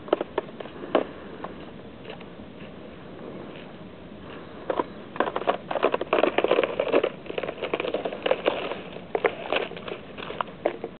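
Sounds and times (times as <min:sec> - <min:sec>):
ice crackling and crunching: 0:04.3 - 0:11.0.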